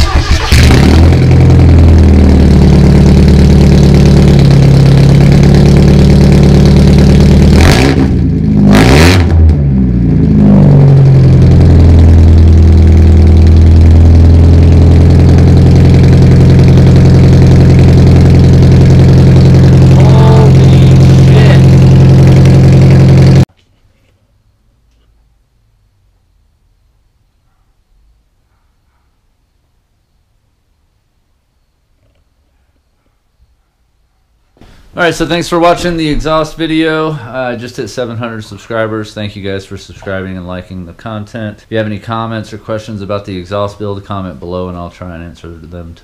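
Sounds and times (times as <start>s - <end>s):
loud car engine idling and revving: 0.0s - 23.5s.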